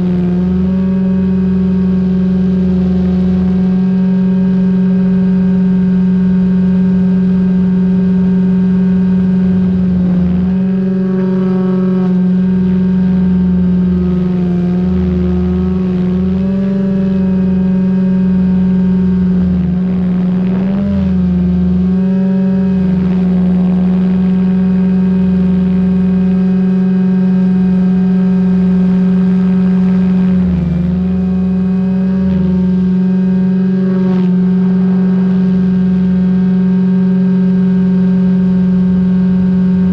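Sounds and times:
low rumble: 0:00.0 - 0:39.9
rc helicopter rotor whine: 0:09.4 - 0:17.6.

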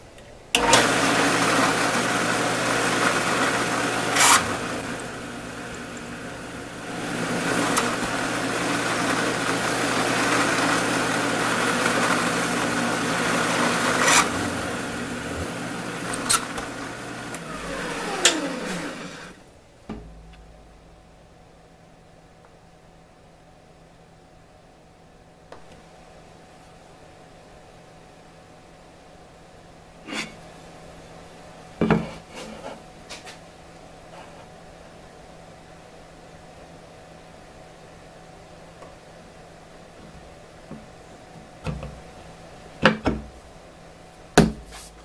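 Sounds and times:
reamer cutting metal: 0:00.6 - 0:19.4
drill press running: 0:00.6 - 0:20.7
motor winding down: 0:02.7 - 0:06.1, 0:11.8 - 0:19.4.

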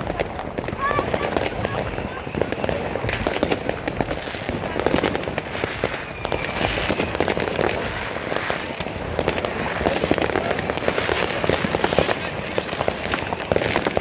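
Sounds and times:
fireworks crackling and banging: 0:00.0 - 0:14.0.

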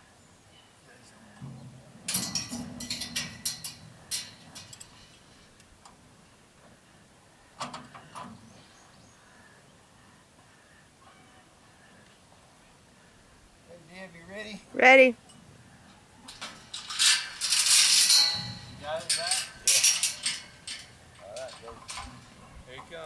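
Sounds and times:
steel chute banging and rattling: 0:01.3 - 0:06.1, 0:16.2 - 0:23.0.

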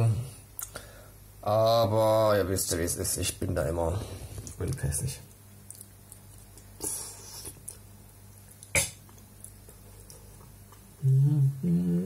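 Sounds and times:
person slurping: 0:06.6 - 0:07.8, 0:08.6 - 0:09.2
man humming mmm: 0:11.0 - 0:12.0.

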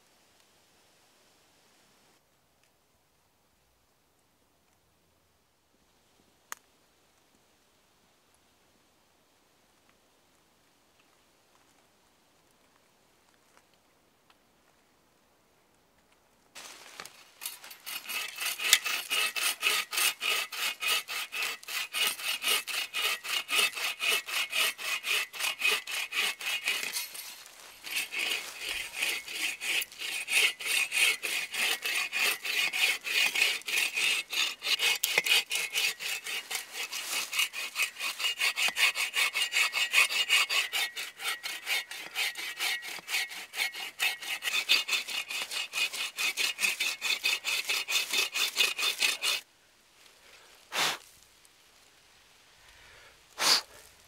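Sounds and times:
hand saw cutting log: 0:17.4 - 0:49.4, 0:50.7 - 0:51.0, 0:53.4 - 0:53.7.

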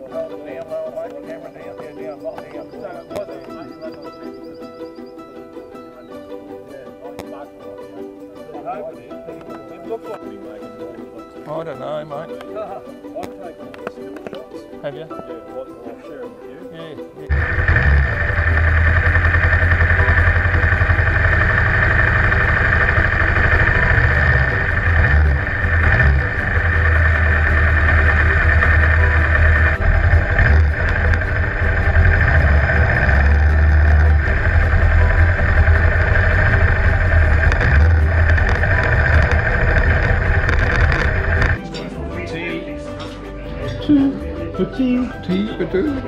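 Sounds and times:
motorcycle engines idling: 0:17.3 - 0:41.6.

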